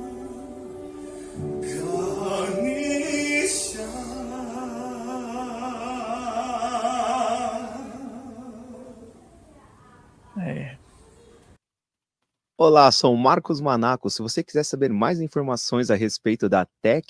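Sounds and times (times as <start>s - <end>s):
person singing chant-like long notes: 0.0s - 9.2s.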